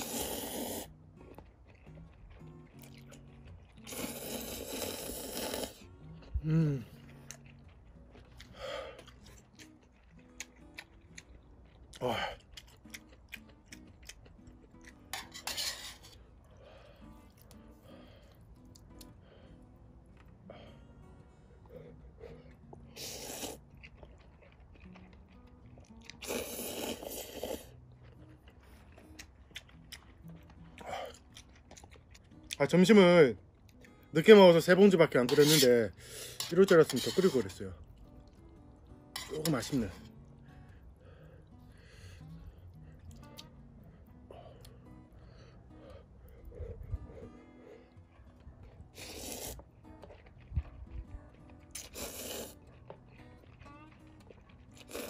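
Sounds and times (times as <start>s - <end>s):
person slurping noodles: 0.0s - 0.9s, 3.8s - 5.8s, 22.8s - 23.7s, 26.2s - 27.7s, 35.3s - 37.5s, 48.9s - 49.6s, 51.8s - 52.6s, 54.8s - 55.0s
noisy mouthful of noodles: 0.0s - 1.0s, 2.8s - 7.4s, 21.6s - 23.7s, 26.1s - 27.8s, 48.8s - 50.6s, 51.7s - 52.7s, 54.8s - 55.0s
soft chewing clicks: 0.9s - 4.0s, 7.0s - 15.1s, 16.4s - 20.4s, 21.0s - 32.6s, 37.8s - 55.0s
short vocal sound: 6.4s - 6.9s.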